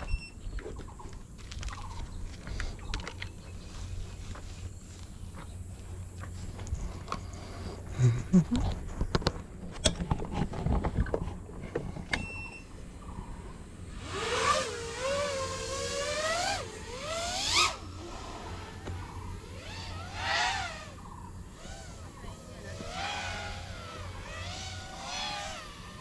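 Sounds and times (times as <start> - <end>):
drone motors whining: 11.8 - 26.0.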